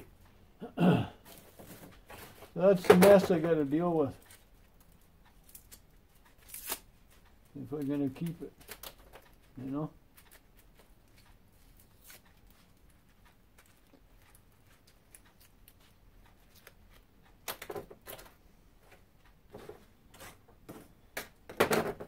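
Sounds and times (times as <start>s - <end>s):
paper crinkles and clicks: 4.2s - 18.3s.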